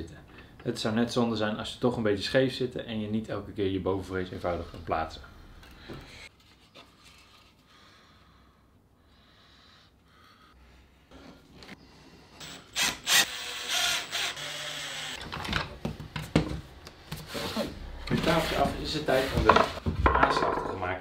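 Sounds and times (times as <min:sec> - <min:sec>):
faint handling sounds: 0:06.0 - 0:07.7.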